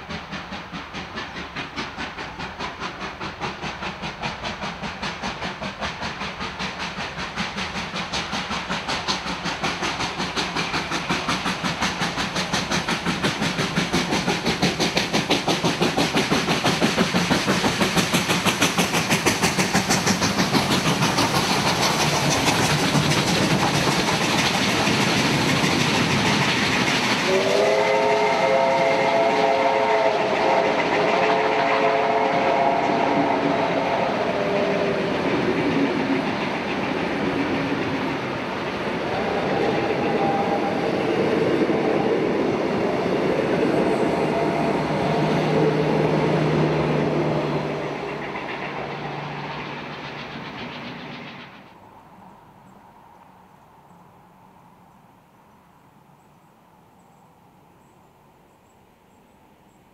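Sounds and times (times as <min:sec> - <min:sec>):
steam locomotive exhaust chuffing: 0:00.0 - 0:52.8
steam whistle: 0:27.2 - 0:35.3, 0:39.0 - 0:47.5.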